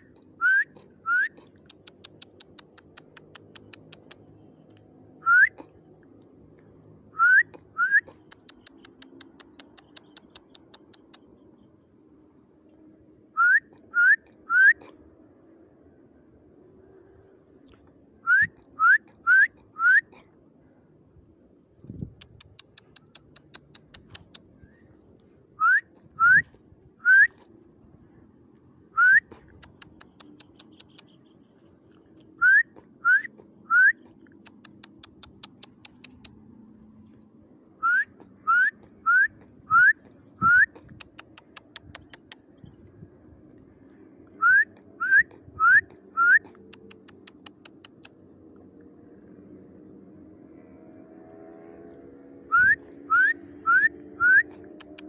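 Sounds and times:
short rising whistles: 0.4 - 1.4, 5.2 - 5.6, 7.1 - 8.6, 13.2 - 14.8, 18.2 - 20.1, 22.2 - 27.5, 28.9 - 31.1, 32.4 - 36.5, 37.8 - 41.2, 44.4 - 48.0, 52.4 - 55.0
rapid sharp clicks: 1.4 - 4.3, 8.1 - 11.3, 22.2 - 24.4, 29.5 - 31.2, 34.3 - 36.4, 40.8 - 42.4, 46.5 - 48.2, 54.6 - 55.0.

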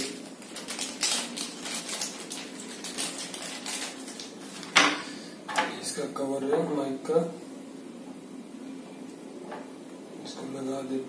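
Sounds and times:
plastic bag crinkling: 0.0 - 4.8.

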